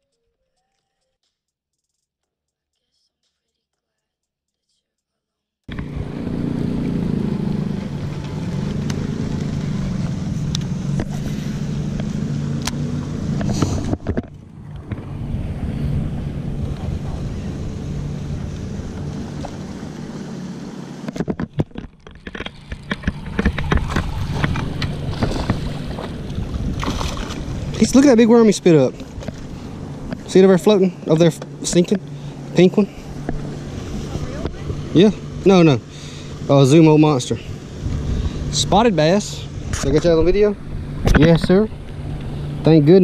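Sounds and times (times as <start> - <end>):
boat motor humming: 5.7 - 43.0
water splashing: 5.7 - 43.0
wind on microphone: 5.8 - 30.3, 37.4 - 42.7.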